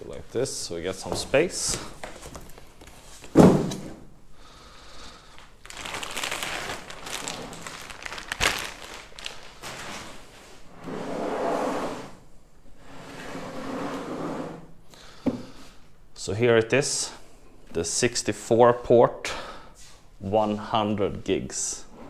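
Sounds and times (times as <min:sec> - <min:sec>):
cardboard box thump: 0:03.3 - 0:03.9
plastic bag rustling: 0:05.3 - 0:10.5.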